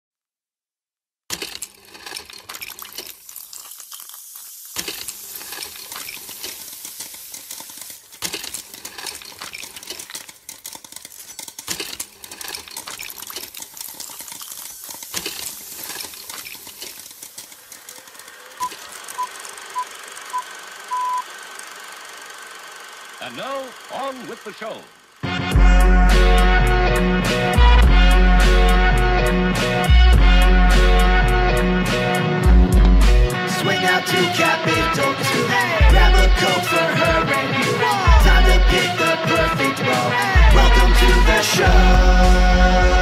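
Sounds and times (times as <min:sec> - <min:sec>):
pops and clicks: 0:01.3 - 0:19.5
old film crackle and hiss: 0:01.4 - 0:24.8
short high beeps: 0:18.6 - 0:21.2.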